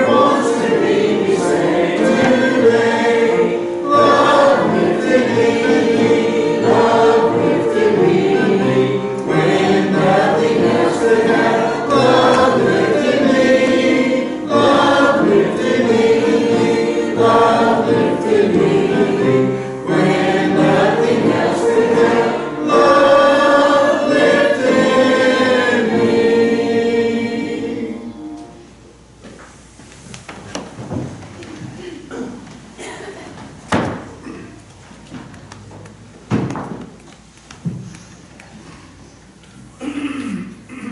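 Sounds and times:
congregation singing a hymn: 0.0s - 28.8s.

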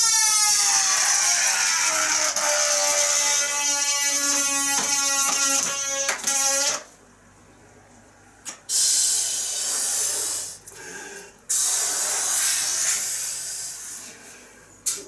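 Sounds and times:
breaths blowing up balloon: 8.7s - 10.9s, 11.5s - 14.1s.

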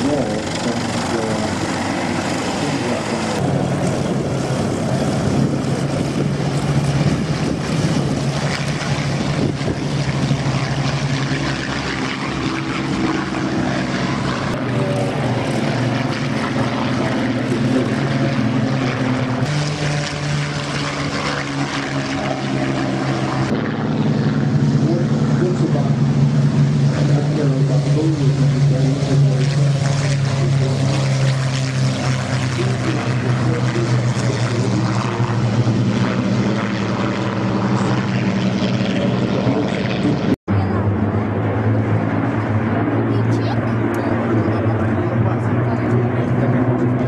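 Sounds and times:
propeller aircraft engine drone: 0.0s - 47.0s.

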